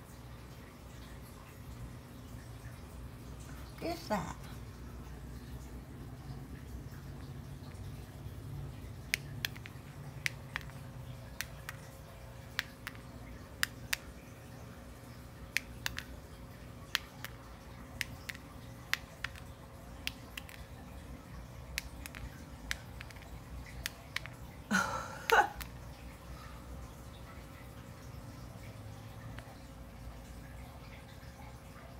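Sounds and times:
faint steady hum: 0.0s - 31.9s.

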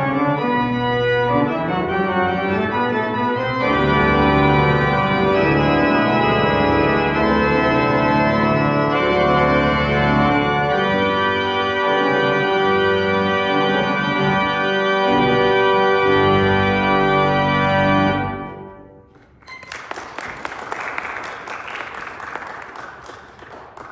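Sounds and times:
church organ chords: 0.0s - 19.1s
hand clapping: 19.1s - 23.9s.

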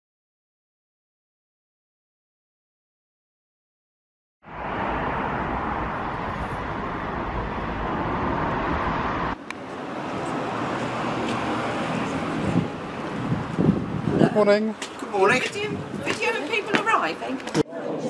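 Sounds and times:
cars rushing on street: 4.4s - 17.6s.

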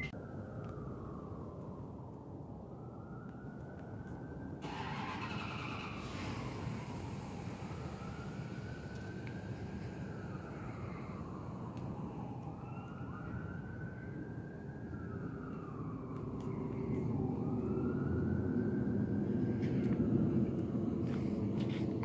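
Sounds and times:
distant siren wailing: 0.0s - 22.0s.

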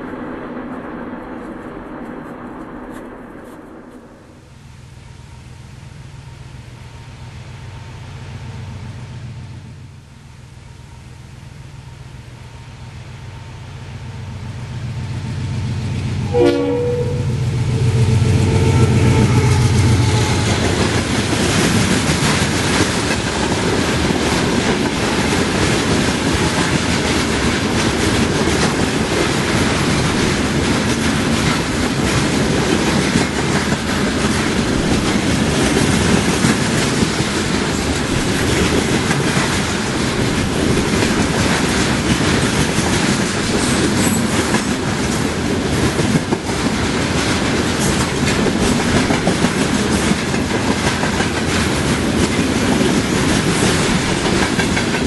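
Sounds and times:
short horn: 16.3s - 20.6s.

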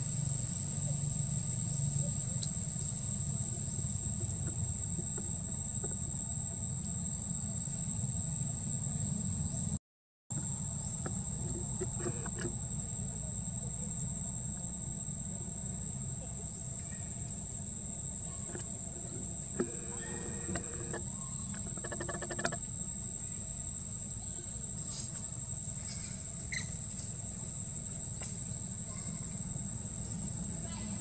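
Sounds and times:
high thin insect-like whine: 10.4s - 31.0s
short squeaky calls: 18.4s - 22.6s, 25.8s - 27.1s.

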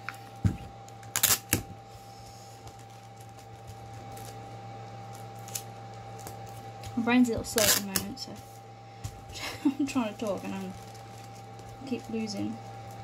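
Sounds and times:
steady background hum: 0.0s - 13.0s
tissue paper rustling: 9.5s - 13.0s.

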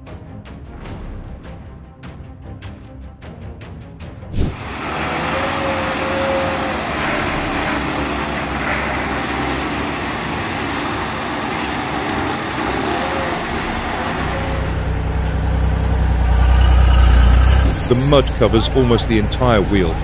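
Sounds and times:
steady rushing noise: 4.2s - 20.0s
heavy engine running: 4.3s - 20.0s.

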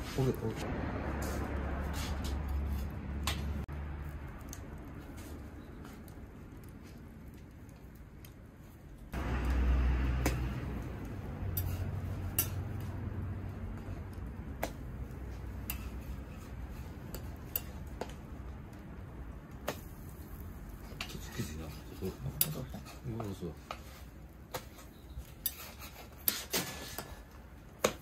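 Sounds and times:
metal spatula scraping griddle: 1.2s - 3.6s, 11.5s - 12.7s, 15.3s - 17.9s, 20.3s - 27.3s.

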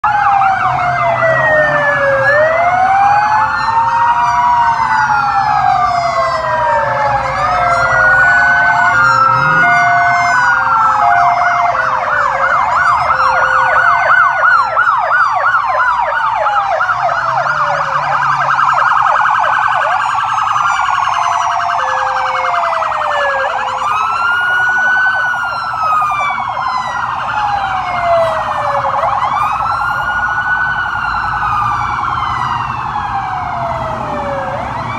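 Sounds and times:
police sirens wailing: 0.0s - 34.9s
siren yelp: 0.0s - 34.9s
two-note siren tone: 7.4s - 14.8s.

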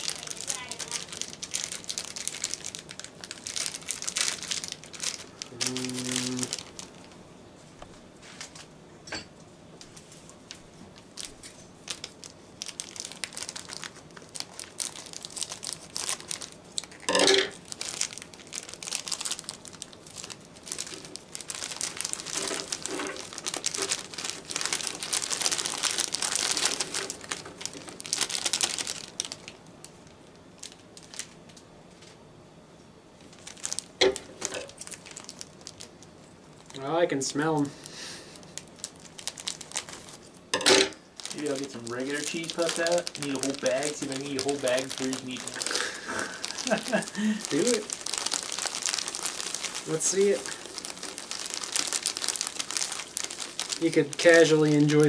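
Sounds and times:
plastic snack bags crinkling: 0.0s - 7.2s, 10.0s - 31.6s, 33.2s - 55.0s.

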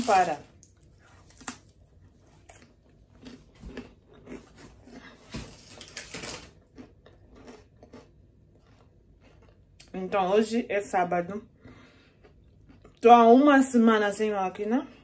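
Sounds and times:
cracker crunching while chewed: 0.5s - 10.0s.

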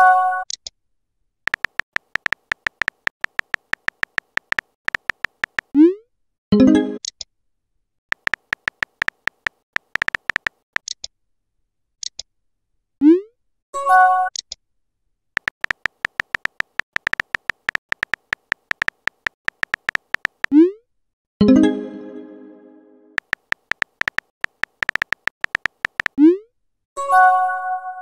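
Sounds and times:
phone keyboard clicks: 1.5s - 5.7s, 8.1s - 11.1s, 15.4s - 20.6s, 23.2s - 26.2s.

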